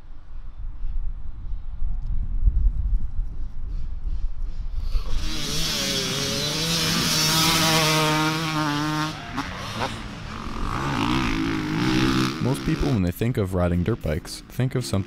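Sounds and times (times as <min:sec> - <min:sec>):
dirt bike engine revving: 0:04.8 - 0:15.0.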